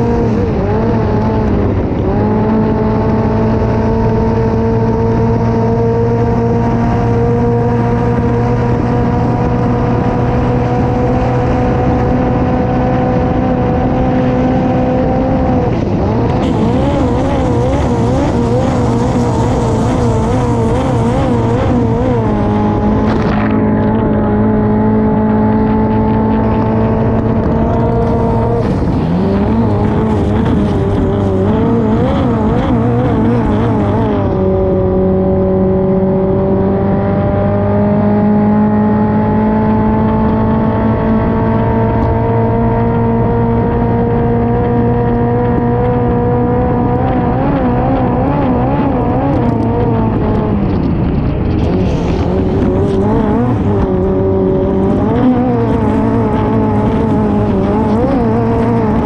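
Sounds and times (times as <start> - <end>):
boat engine at high revs: 0.0 - 50.9, 51.7 - 59.0
rush of spray and wind: 15.5 - 24.2.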